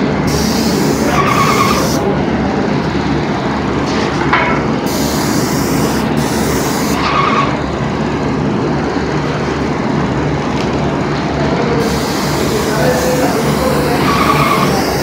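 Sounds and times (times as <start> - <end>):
compressor motor running: 0.0 - 15.0
paint spray gun hissing: 0.2 - 2.0, 4.9 - 7.0, 11.8 - 15.0.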